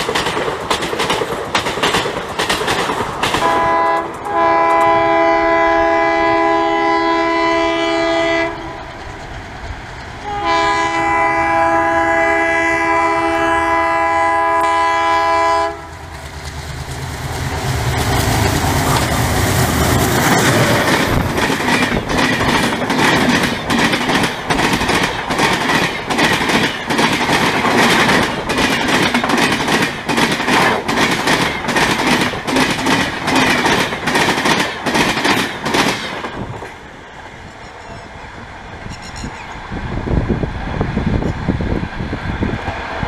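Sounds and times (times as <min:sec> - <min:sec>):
train wheels clattering over joints: 0:00.0 - 0:04.9, 0:16.1 - 0:37.7
distant diesel locomotive rumble: 0:00.0 - 0:43.0.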